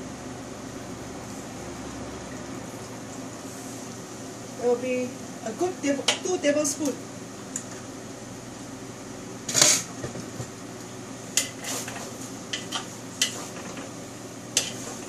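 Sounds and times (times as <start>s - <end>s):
utensils clanking and scraping wok: 9.5s - 10.0s, 11.4s - 13.9s, 14.6s - 15.0s.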